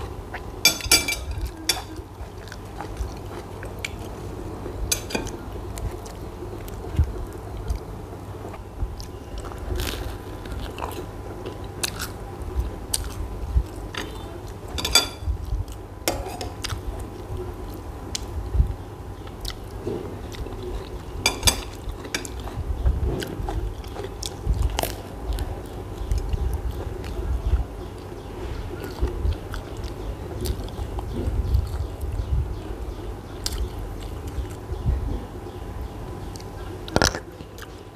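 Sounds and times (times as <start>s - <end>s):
person chewing crusty bread: 1.2s - 18.3s, 19.2s - 32.2s.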